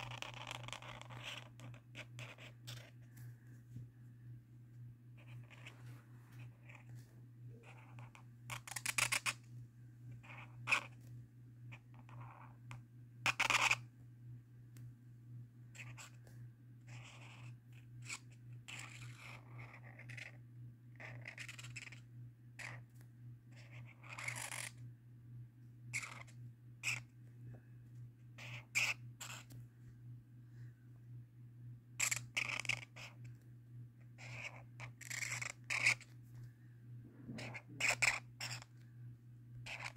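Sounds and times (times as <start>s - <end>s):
marker scratching on paper: 0.0s - 3.1s, 5.2s - 7.0s, 7.6s - 9.5s, 10.2s - 11.0s, 11.7s - 13.8s, 15.8s - 16.2s, 16.9s - 20.4s, 21.0s - 22.0s, 22.6s - 24.8s, 26.0s - 27.1s, 28.4s - 29.6s, 32.0s - 33.3s, 34.2s - 36.2s, 37.2s - 38.7s, 39.6s - 39.9s
steady low hum: 0.0s - 39.9s.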